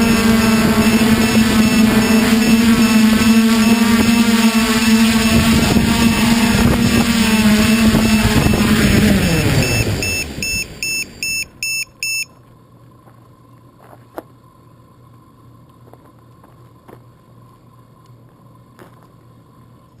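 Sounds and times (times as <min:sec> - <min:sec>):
high-pitched electronic beeps: 0:00.0 - 0:06.6, 0:07.2 - 0:12.3
drone motors winding down: 0:00.0 - 0:11.6
faint steady hum: 0:00.0 - 0:20.0
clicks and crunches on gravel: 0:12.5 - 0:14.4, 0:15.7 - 0:19.4.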